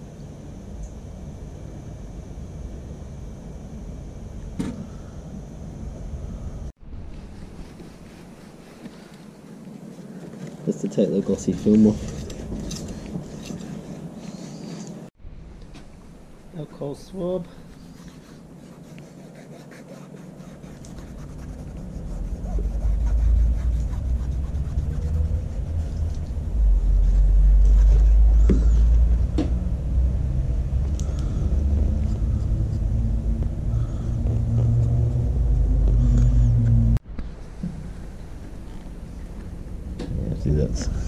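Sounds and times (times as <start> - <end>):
loud deep rumble: 21.5 - 37.0.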